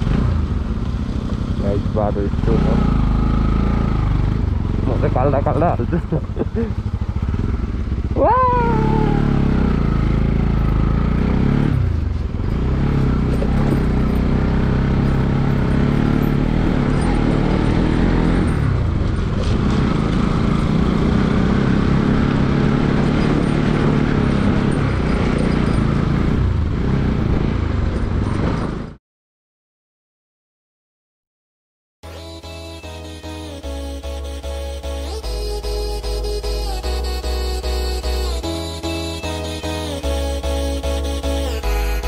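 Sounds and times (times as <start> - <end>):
motorcycle engine running: 0.0 - 28.9, 32.0 - 42.0
road and wind noise: 0.0 - 29.0.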